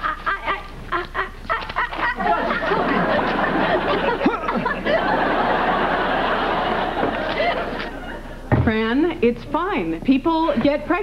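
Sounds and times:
people laughing: 0.0s - 8.4s.

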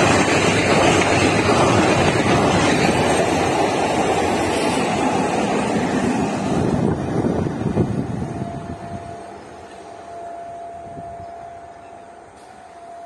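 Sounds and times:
train rushing past: 0.0s - 13.0s
wind on microphone: 6.4s - 9.2s.

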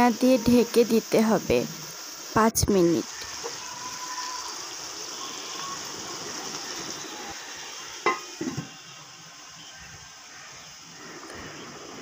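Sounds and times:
liver sizzling in a pot: 0.0s - 12.0s
pot lid clattering: 8.0s - 8.7s.

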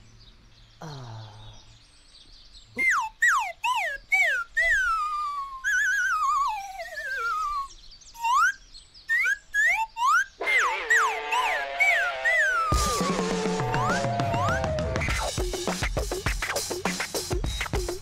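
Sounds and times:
cat yowling: 10.4s - 15.0s.

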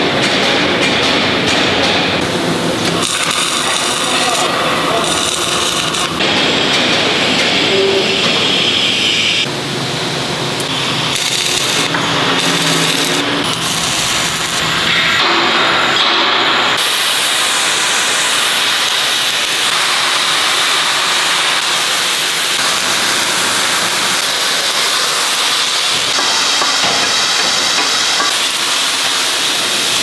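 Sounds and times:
metal fabrication shop noise: 0.0s - 30.0s
arc welding crackle: 2.2s - 30.0s.

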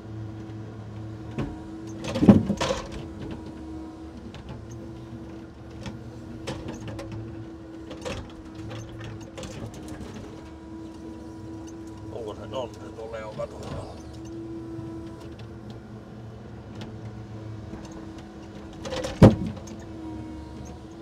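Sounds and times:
hydraulics humming: 0.0s - 21.0s.

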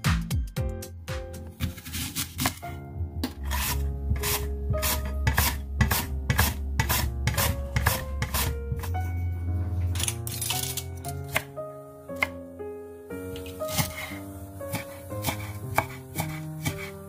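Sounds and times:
light background music: 0.0s - 17.0s
onion rasping on mandoline slicer: 3.4s - 9.0s, 13.4s - 17.0s.

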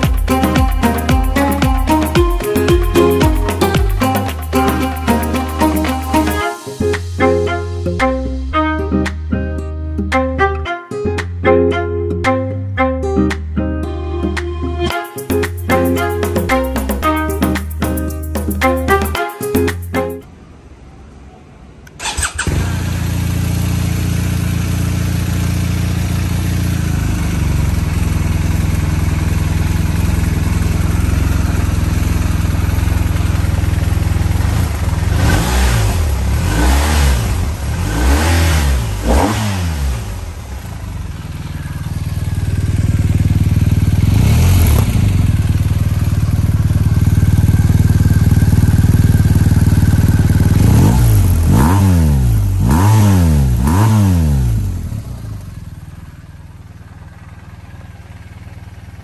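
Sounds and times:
motorcycle engine idling and revving: 0.0s - 6.4s, 22.0s - 59.0s.

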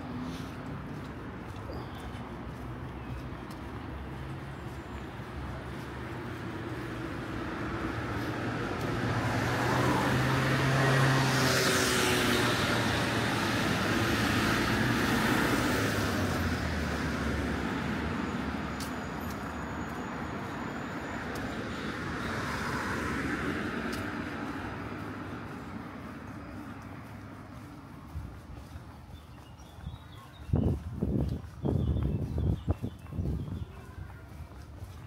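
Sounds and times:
cars driving past: 0.0s - 33.7s.

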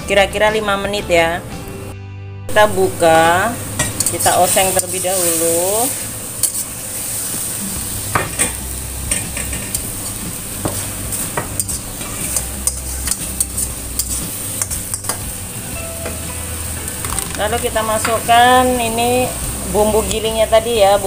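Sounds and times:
food sizzling: 2.5s - 21.0s
spatula scraping a metal wok: 3.8s - 15.1s.

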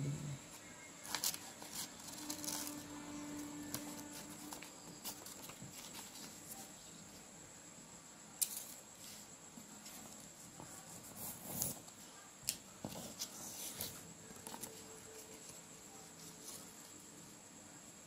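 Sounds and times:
paper rustling and crackling: 1.0s - 2.8s, 3.7s - 6.8s.

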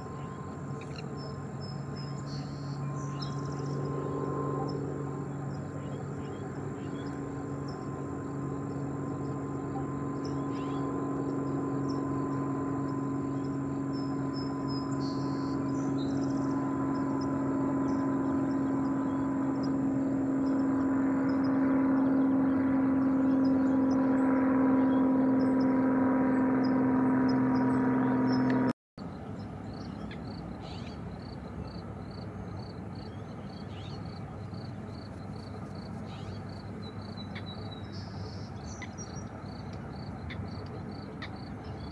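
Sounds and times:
steady motor drone: 0.0s - 41.9s
tern calls: 9.2s - 12.4s, 35.9s - 41.9s.

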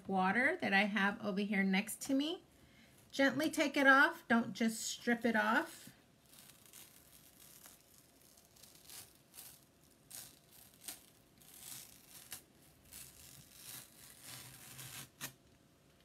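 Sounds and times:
stencil peeling off chalkboard: 6.3s - 15.4s.

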